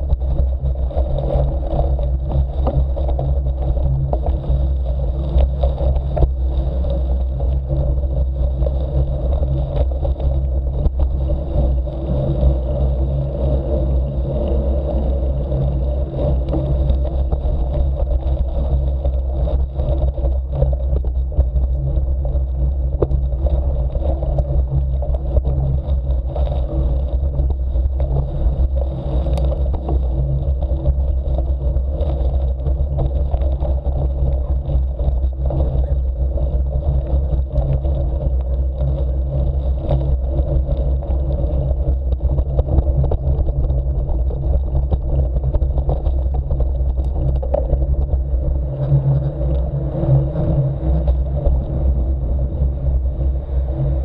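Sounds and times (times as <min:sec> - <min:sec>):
grit rattling and scraping: 0:00.0 - 0:52.2
bike tyres rumbling on gravel: 0:00.0 - 0:54.0.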